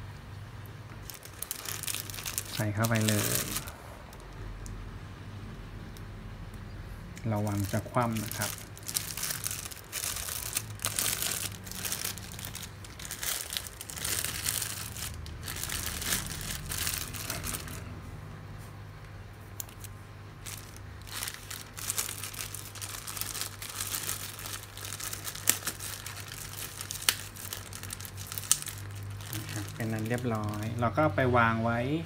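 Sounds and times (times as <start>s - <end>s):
plastic bag crinkling: 1.0s - 4.3s, 7.2s - 17.9s, 19.6s - 30.8s.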